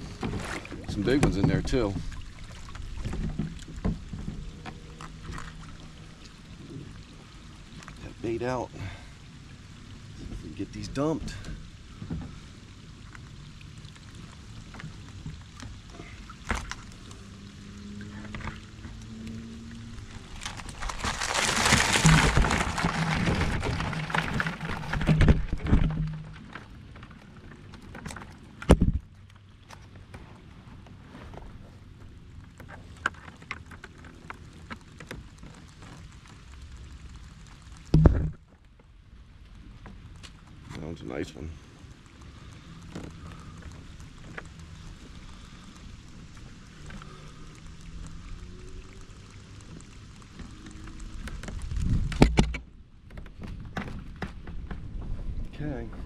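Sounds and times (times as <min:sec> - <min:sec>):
water dripping: 0:00.1 - 0:29.6, 0:32.3 - 0:52.3
clicks of wire and crabs: 0:32.6 - 0:38.5, 0:41.5 - 0:54.8.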